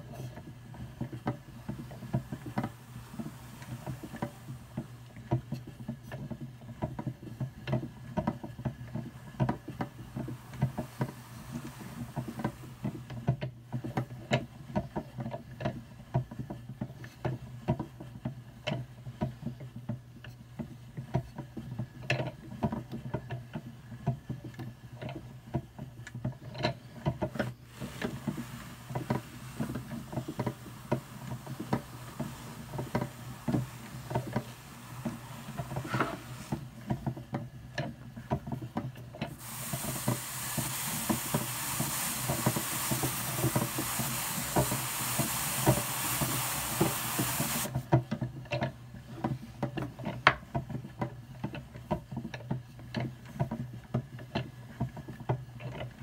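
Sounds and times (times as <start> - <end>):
brush hissing on spinning drum: 0.0 - 15.0, 26.5 - 37.4, 39.2 - 47.9
drum carder ticking and rustling: 0.0 - 56.0.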